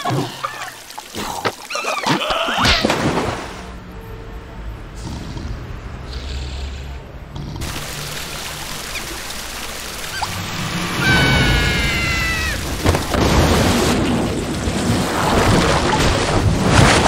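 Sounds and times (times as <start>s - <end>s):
heavy gush of water: 0.0s - 2.2s, 7.6s - 17.0s
high-pitched cartoon cry: 11.0s - 12.6s.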